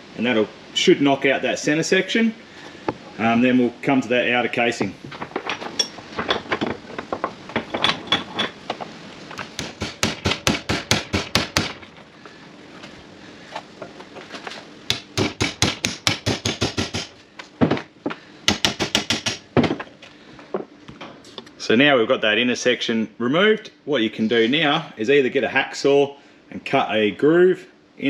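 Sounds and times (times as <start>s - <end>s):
hammer striking a chisel: 9.5s - 11.8s, 14.9s - 17.1s, 18.5s - 19.5s.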